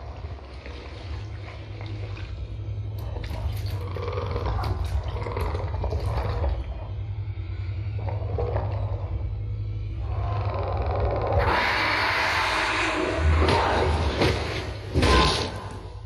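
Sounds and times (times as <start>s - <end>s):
deep rumble: 0.0s - 16.0s
creature growling: 10.0s - 16.0s.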